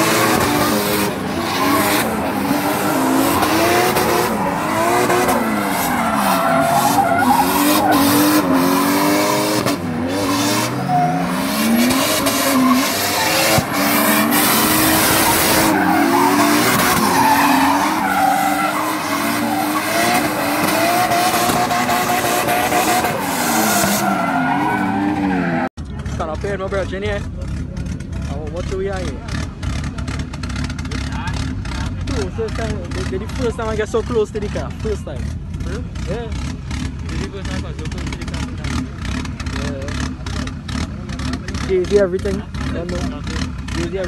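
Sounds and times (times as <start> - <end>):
car engine revving hard: 0.0 - 25.7
tyres squealing and skidding: 0.0 - 25.7.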